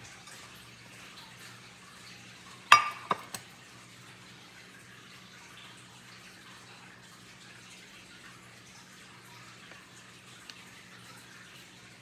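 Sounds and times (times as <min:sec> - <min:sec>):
spoon clinking against bowl: 0:02.7 - 0:03.4.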